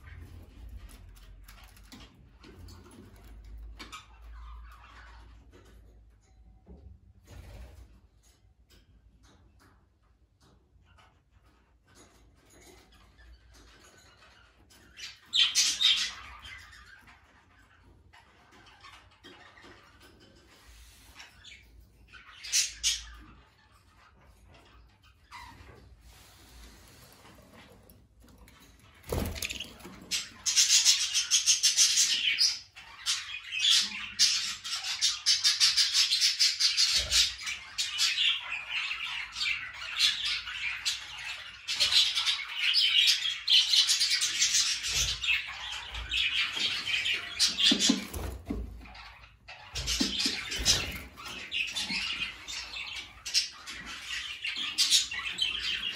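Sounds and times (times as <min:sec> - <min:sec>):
budgerigars chattering and warbling: 0:12.7 - 0:27.3, 0:28.8 - 0:55.9.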